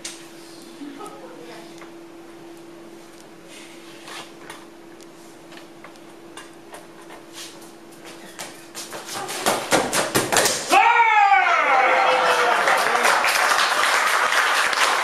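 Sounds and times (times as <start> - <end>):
faint steady hum: 0.0 - 15.0
audience clapping: 11.9 - 15.0.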